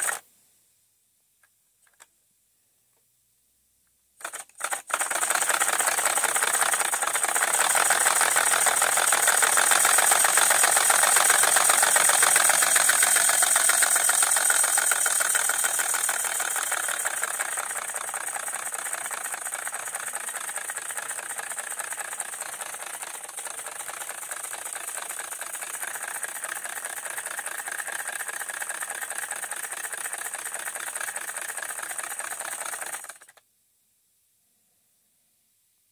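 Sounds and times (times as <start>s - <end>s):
model steam locomotive exhaust hiss: 0.0s - 0.2s, 4.6s - 33.3s.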